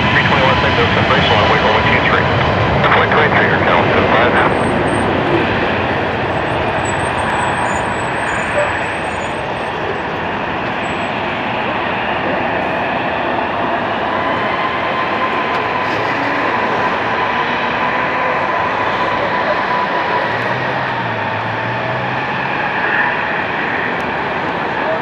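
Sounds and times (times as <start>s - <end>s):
faint whine: 0.0s - 17.4s
jet engines at takeoff power: 0.0s - 25.0s.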